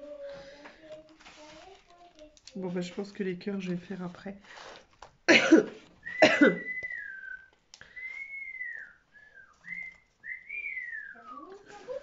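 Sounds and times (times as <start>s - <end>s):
whistling long gliding notes: 6.8s - 11.6s.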